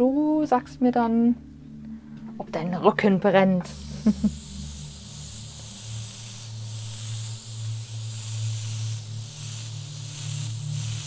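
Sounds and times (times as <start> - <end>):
low steady hum: 0.0 - 11.0
airbrush air hiss: 3.6 - 11.0.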